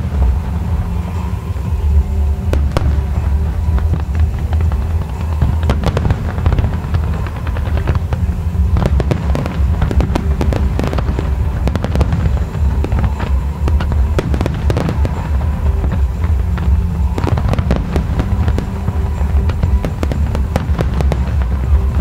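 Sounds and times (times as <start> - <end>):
deep rumble: 0.0 - 22.0
fireworks bangs and crackles: 0.0 - 22.0.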